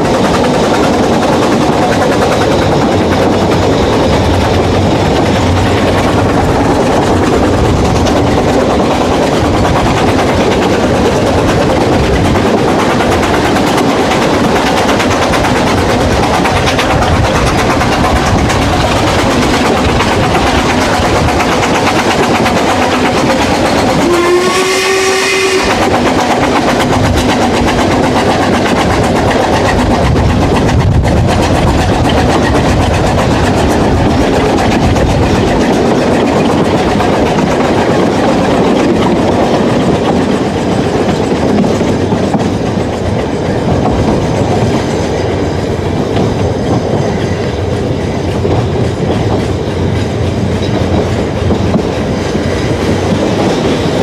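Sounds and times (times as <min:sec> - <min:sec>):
train wheels clattering on rails: 0:00.0 - 0:54.0
steam whistle blast: 0:24.0 - 0:25.8.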